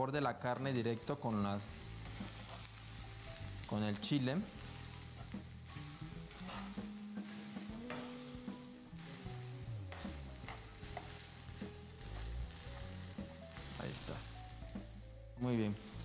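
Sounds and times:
meat sizzling in a skillet: 0.0s - 16.0s
fork scraping a pan: 6.3s - 6.8s.

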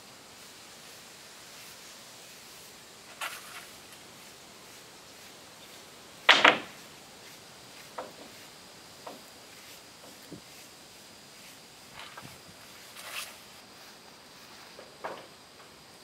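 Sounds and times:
paintbrush brushing on wood: 0.0s - 14.9s
faint scrapes: 9.4s - 14.8s.

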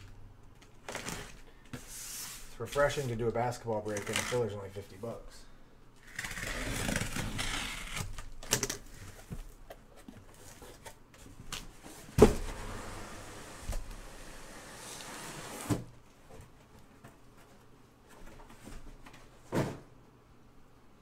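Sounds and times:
cardboard scraping and rubbing: 6.1s - 8.1s.

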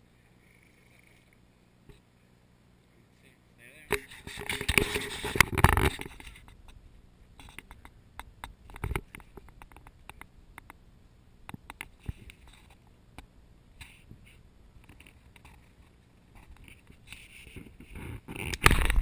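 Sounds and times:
camera handling rustling and scraping: 3.9s - 6.6s, 14.9s - 19.0s.

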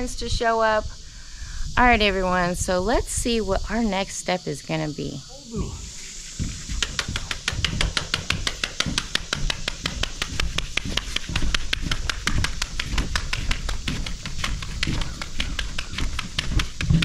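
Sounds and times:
low thuds: 5.1s - 17.0s.

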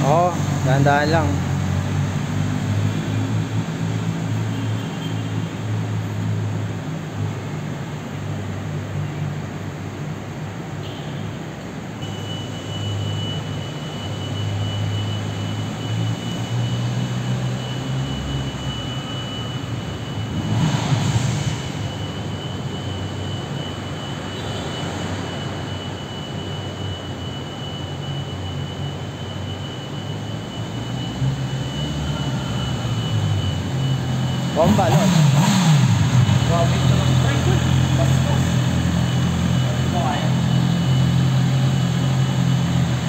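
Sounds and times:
motorcycle engine echoing in garage: 12.0s - 43.0s.

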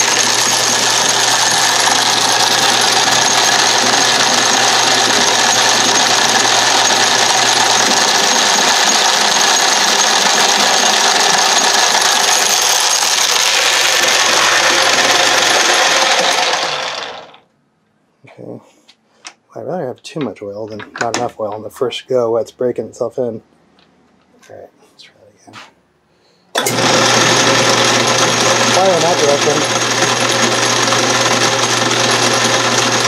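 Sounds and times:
electric motor hum: 0.0s - 17.4s, 26.6s - 33.0s
lathe gears whirring loudly: 0.0s - 17.4s, 26.6s - 33.0s.

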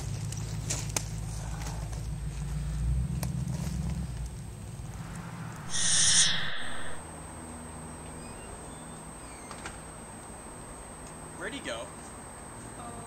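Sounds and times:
low rumble: 4.4s - 7.0s
harsh bird screech: 5.0s - 7.0s.

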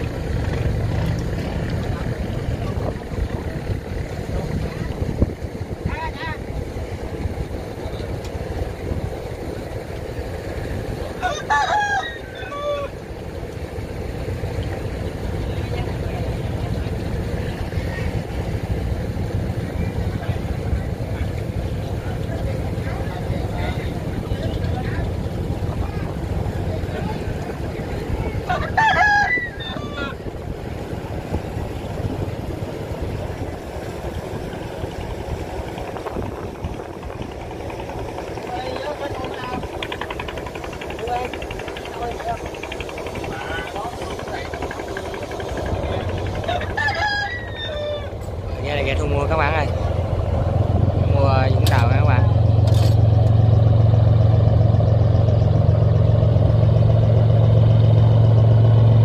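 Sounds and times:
boat engines rumbling: 0.0s - 59.0s
water noise: 0.0s - 59.0s
wind: 0.0s - 59.0s
rooster crowing: 11.2s - 13.0s, 28.5s - 30.2s, 46.4s - 48.3s.

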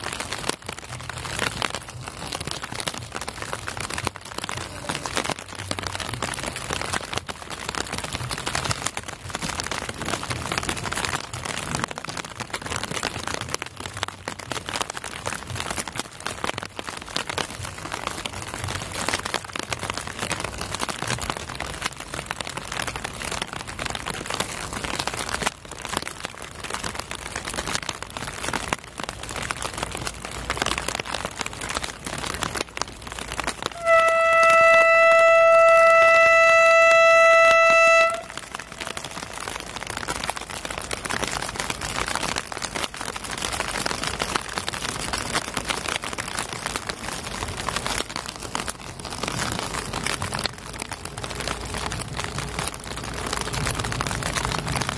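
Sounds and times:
rain falling: 0.0s - 54.9s
locomotive horn: 33.7s - 39.4s.

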